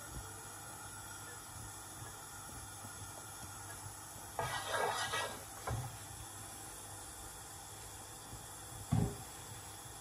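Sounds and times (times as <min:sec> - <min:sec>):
dull knock: 0:08.9 - 0:09.2.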